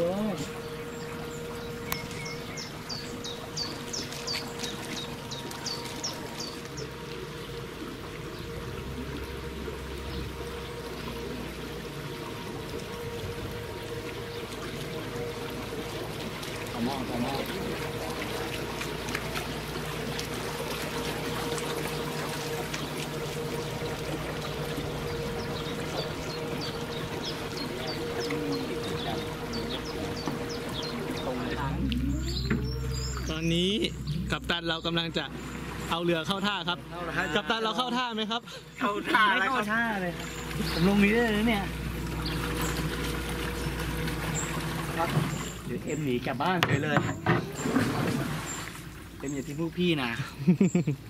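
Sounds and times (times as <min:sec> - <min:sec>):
songbird calling high notes: 0:00.0 - 0:07.6, 0:21.2 - 0:37.4
boat motor hum: 0:00.0 - 0:51.0
low rumble: 0:23.3 - 0:36.0.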